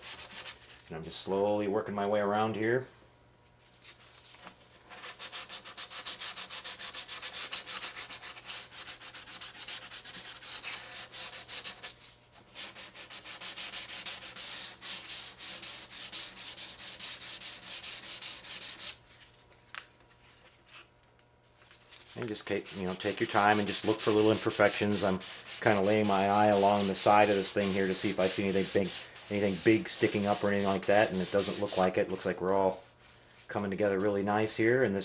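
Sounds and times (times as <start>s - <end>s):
sandpaper scuffing plastic: 21.8s - 32.2s.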